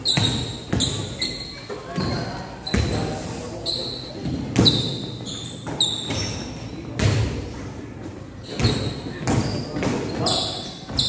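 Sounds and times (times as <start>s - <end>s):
sneakers squeaking on court floor: 0.0s - 7.3s, 8.4s - 11.0s
basketball bouncing echoing thuds: 6.0s - 7.4s, 8.5s - 10.2s.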